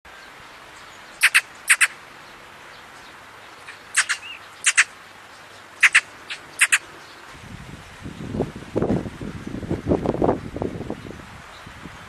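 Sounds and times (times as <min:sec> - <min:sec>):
magpie harsh calls: 0:01.2 - 0:02.0, 0:03.7 - 0:05.0, 0:05.8 - 0:06.8.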